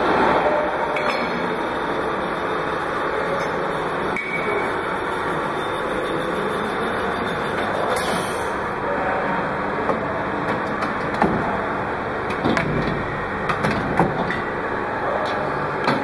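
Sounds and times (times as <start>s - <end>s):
filling machine running: 0.0s - 10.2s
machine clicks and knocks: 12.3s - 14.4s.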